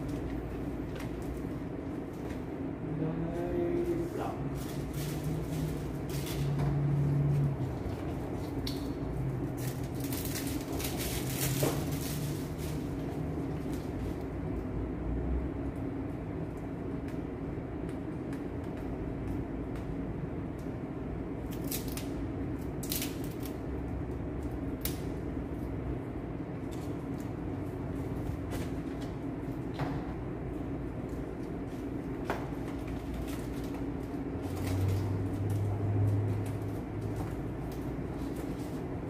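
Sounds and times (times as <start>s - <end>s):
steady low hum: 0.0s - 39.0s
foil balloon crinkling: 8.2s - 14.0s.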